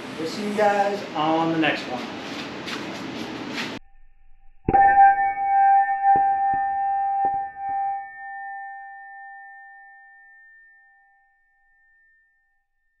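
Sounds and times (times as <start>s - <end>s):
struck metallic bell-like ring: 3.8s - 12.8s.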